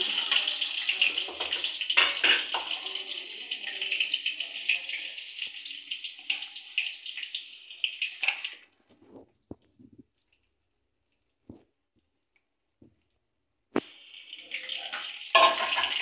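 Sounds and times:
hot oil sizzling: 0.0 - 10.0, 13.8 - 16.0.

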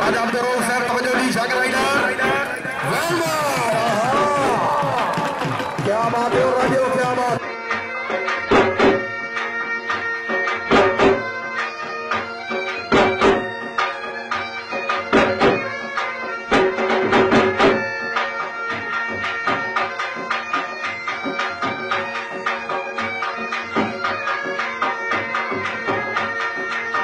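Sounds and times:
drum strokes: 1.7 - 7.4.

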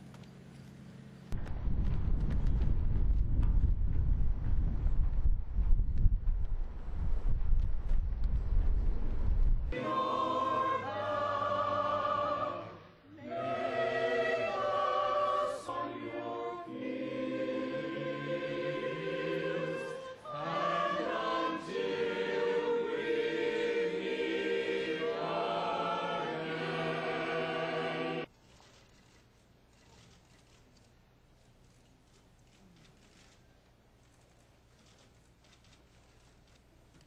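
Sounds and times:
choir singing long held notes: 9.7 - 28.3.

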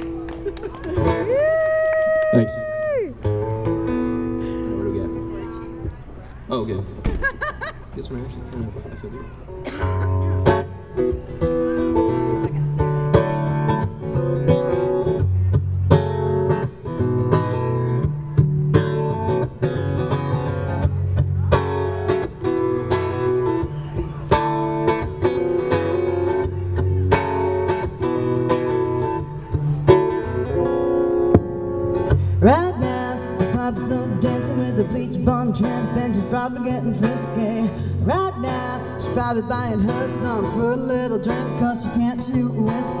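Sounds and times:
acoustic guitar strummed: 3.2 - 5.9, 9.5 - 43.0
person singing: 32.4 - 43.0.

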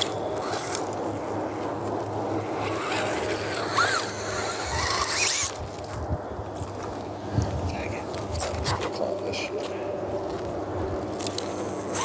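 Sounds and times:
electric motor whining and grinding: 0.0 - 5.9, 10.2 - 12.0
short rising squeals: 2.6 - 5.6.

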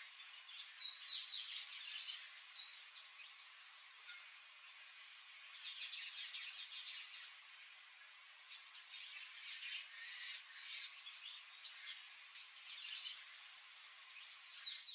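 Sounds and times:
bird chirping and twittering: 0.0 - 4.4, 5.5 - 7.8, 8.4 - 14.9.

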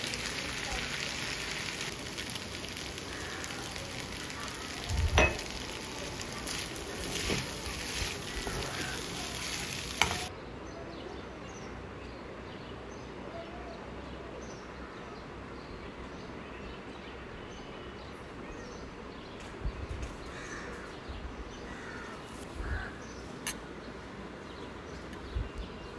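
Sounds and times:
light sizzle: 0.0 - 10.3
spoon stirring pasta in wok: 0.0 - 10.3
steady background hiss: 0.0 - 10.7
spoon clicking on pan: 5.1 - 5.8.

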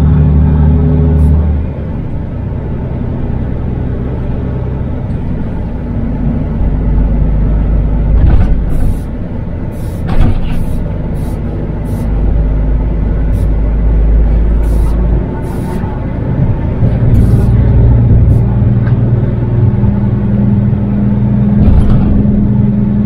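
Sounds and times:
road noise: 0.0 - 23.0
truck diesel engine drone: 0.0 - 23.0
truck air hisses: 8.7 - 12.2, 13.3 - 13.6, 14.5 - 15.9, 17.2 - 17.6.

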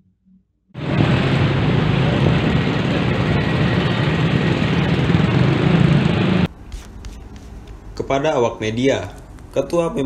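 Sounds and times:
passing vehicle traffic: 0.8 - 6.5.

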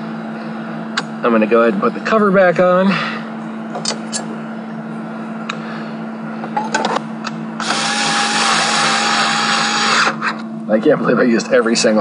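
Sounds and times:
cordless drill motor whine: 7.6 - 10.5.

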